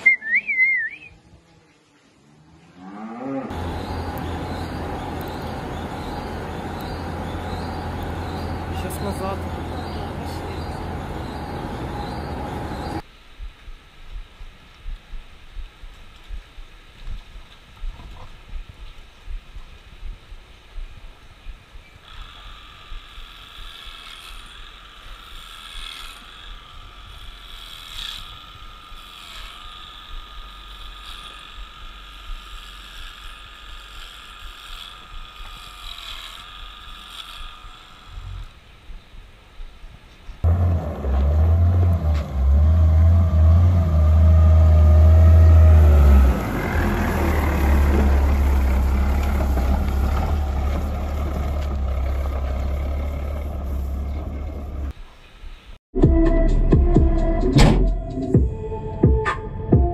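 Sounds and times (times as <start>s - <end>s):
diesel engine running: 3.5s - 13.0s, 40.4s - 54.9s
electric clippers buzzing: 3.5s - 13.0s, 22.0s - 38.7s, 40.4s - 54.1s.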